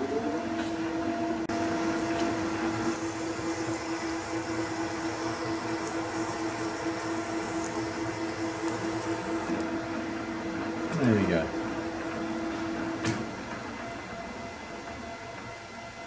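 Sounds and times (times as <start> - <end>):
lathe humming: 1.4 - 15.8.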